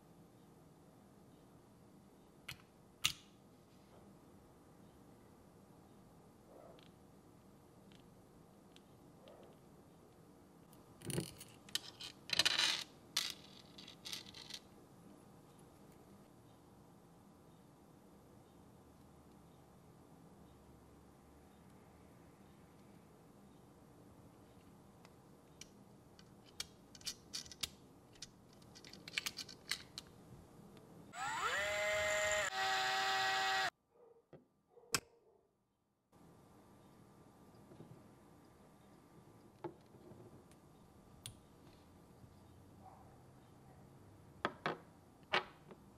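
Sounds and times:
metal parts clinking and rattling: 11.0s - 14.7s, 26.2s - 30.1s
electric screwdriver whining: 31.2s - 33.7s.

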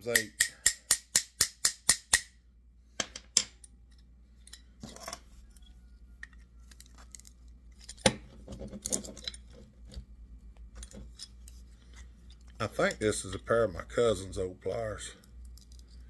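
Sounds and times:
pliers clicking and scraping: 3.2s - 10.0s, 15.2s - 16.0s.

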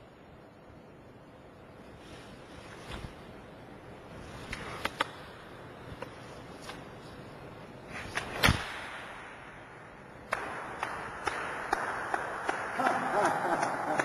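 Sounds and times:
steady hiss: 0.0s - 14.0s
sword swishing through air: 7.9s - 9.3s.

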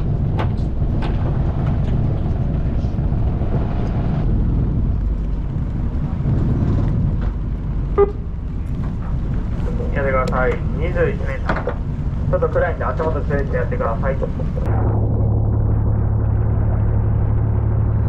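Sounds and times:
boat engine rumbling: 0.0s - 18.0s
short buzzer beep: 8.0s - 8.3s.

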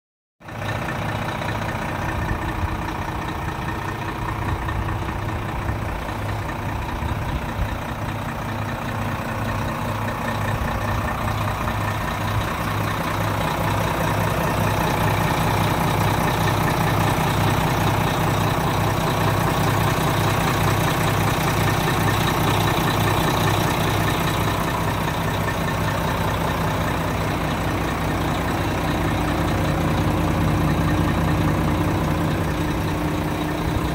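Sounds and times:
diesel truck engine idling: 0.4s - 33.9s.

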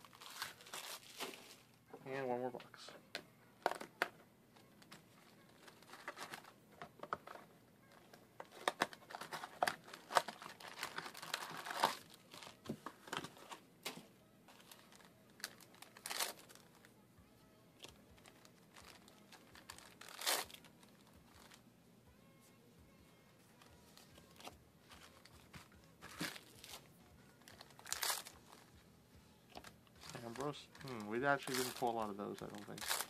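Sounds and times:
foil packs crinkling: 0.0s - 1.7s, 4.8s - 6.6s, 8.4s - 16.9s, 17.9s - 21.6s, 24.2s - 28.8s, 29.5s - 33.0s
foil ripping: 0.0s - 1.7s, 8.6s - 13.4s, 14.5s - 16.7s, 18.2s - 21.6s, 24.3s - 28.7s, 29.6s - 33.0s.

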